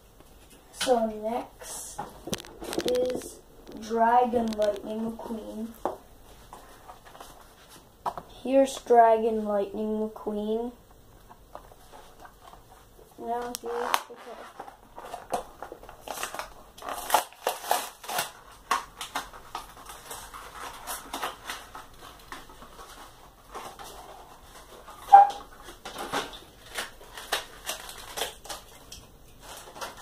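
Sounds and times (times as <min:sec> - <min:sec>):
plastic packaging crinkling: 0:02.1 - 0:07.8, 0:11.3 - 0:30.0
short squeak: 0:25.1 - 0:25.4.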